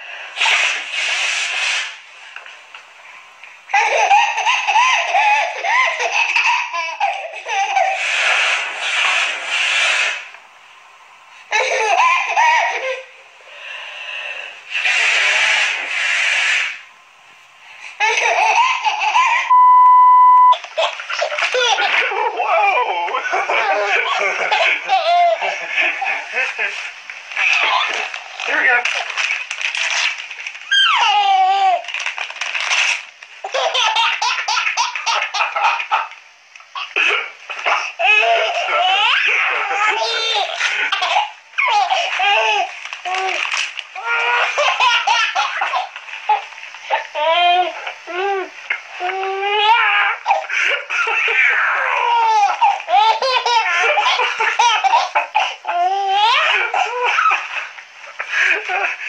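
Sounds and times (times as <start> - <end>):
baby laughing: 3.7 - 8.1, 11.5 - 13.0, 18.0 - 19.5, 20.6 - 26.8, 30.7 - 31.8, 33.4 - 36.2, 36.8 - 48.3, 49.1 - 59.0.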